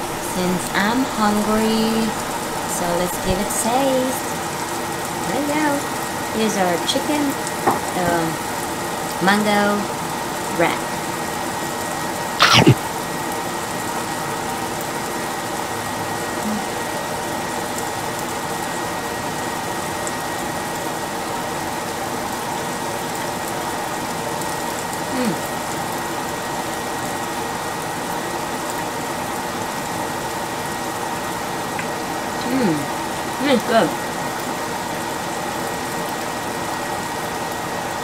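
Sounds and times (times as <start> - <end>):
mechanical hum: 0.0 - 38.0
person humming mm: 12.4 - 12.8, 16.4 - 16.8, 25.1 - 25.4.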